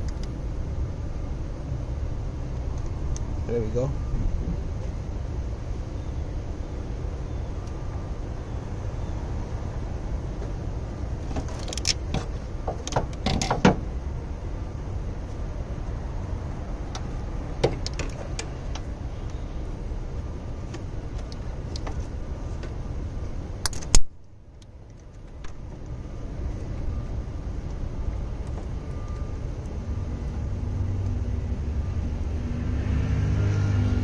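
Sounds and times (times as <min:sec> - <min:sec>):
low background rumble: 0:00.0 - 0:34.0
metallic clicks of cables handled: 0:11.6 - 0:12.3, 0:23.6 - 0:26.0.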